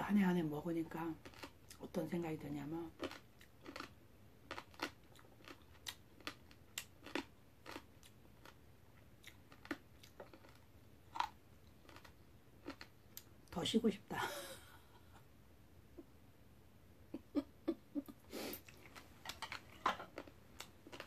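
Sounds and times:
person chewing mouth clicks: 4.5s - 8.6s, 18.0s - 21.0s.

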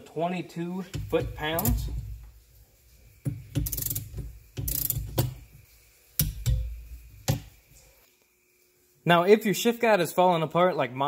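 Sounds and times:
ratchet wrench clicking: 3.6s - 5.4s.

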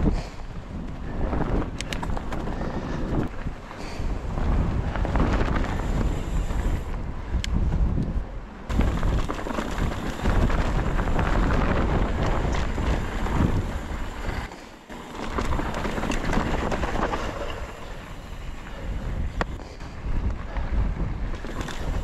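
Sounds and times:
bike clicks and rattles: 0.0s - 22.0s
wind buffeting microphone: 0.0s - 22.0s
tyres rolling on gravelly dirt: 8.7s - 19.9s, 21.3s - 22.0s.

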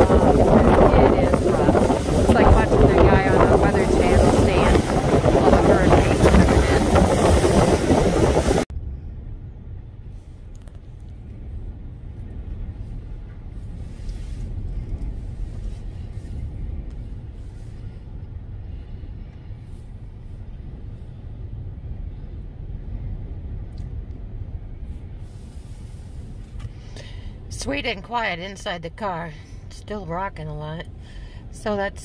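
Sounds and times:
waves breaking on shore: 0.0s - 8.7s
wind buffeting microphone: 0.0s - 27.5s.

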